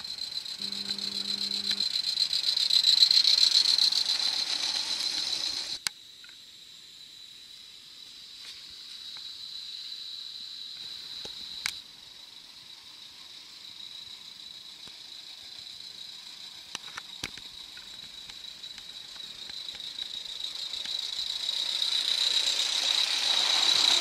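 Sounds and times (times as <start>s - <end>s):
steady high whine: 0.0s - 5.9s, 10.9s - 24.0s
steam hissing: 0.0s - 5.9s, 8.3s - 24.0s
click: 0.8s - 1.8s, 5.8s - 6.4s, 10.8s - 11.8s
wheels rattling on track: 1.8s - 5.8s, 14.9s - 24.0s.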